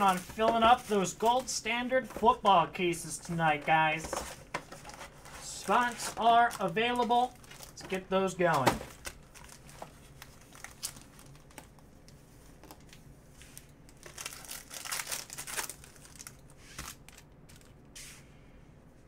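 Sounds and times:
foil wrappers crinkling: 0.0s - 2.5s, 3.2s - 11.9s, 12.6s - 17.8s
foil pack tearing open: 14.0s - 17.2s.

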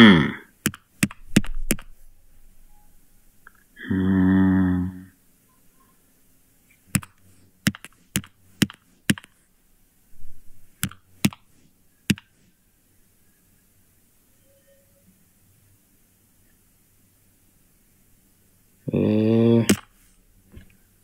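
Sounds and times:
sharp taps on hard surface: 7.0s - 9.3s.

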